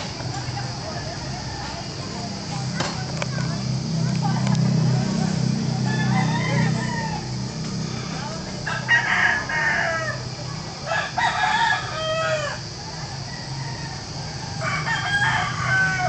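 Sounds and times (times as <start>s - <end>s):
steady low hum: 0.0s - 16.0s
rooster crowing: 5.0s - 16.0s.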